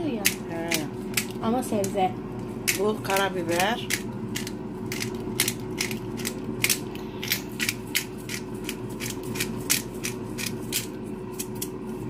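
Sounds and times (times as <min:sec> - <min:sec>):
pepper grinder cracking rasps: 0:02.7 - 0:11.8.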